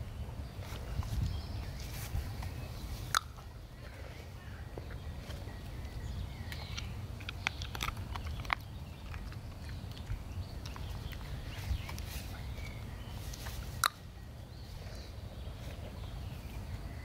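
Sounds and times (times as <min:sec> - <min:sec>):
low wind rumble: 0:00.0 - 0:17.0
buckles clicking and straps rustling: 0:04.8 - 0:16.9.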